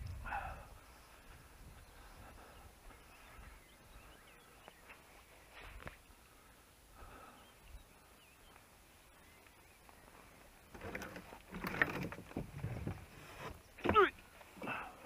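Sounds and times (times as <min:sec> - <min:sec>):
faint bird chirps: 0:00.8 - 0:10.8
rustling and clattering: 0:10.6 - 0:14.6.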